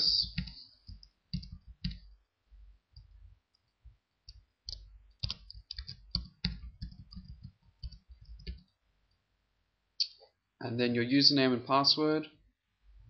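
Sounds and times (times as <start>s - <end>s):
computer keyboard typing: 0.0s - 2.2s, 3.0s - 8.7s.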